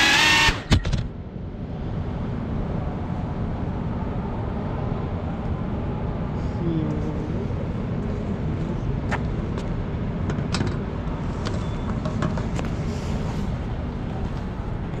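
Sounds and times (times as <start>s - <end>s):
low city rumble: 0.0s - 15.0s.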